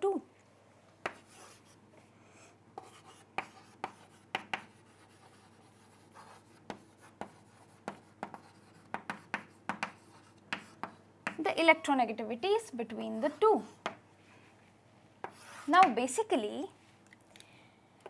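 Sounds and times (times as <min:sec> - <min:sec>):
chalk writing on chalkboard: 0:01.0 - 0:01.8, 0:02.8 - 0:11.4, 0:15.2 - 0:15.9.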